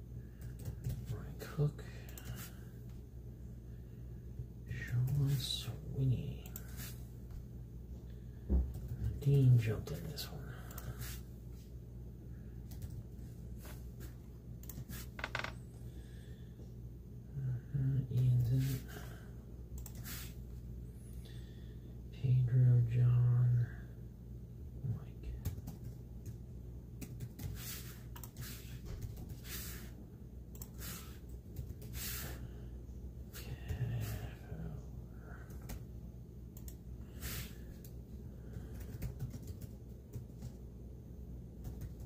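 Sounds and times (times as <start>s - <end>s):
steady low hum: 0.0s - 42.0s
soft hissing puffs: 20.0s - 20.4s, 27.5s - 30.0s, 30.7s - 32.6s, 37.1s - 37.7s.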